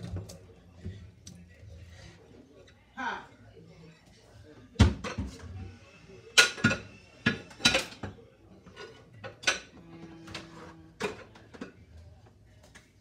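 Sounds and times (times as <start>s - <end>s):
dishes clinking and clattering: 4.7s - 12.8s.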